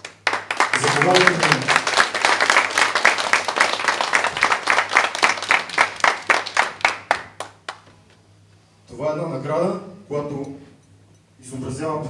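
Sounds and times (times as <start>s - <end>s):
small group applauding: 0.0s - 8.2s.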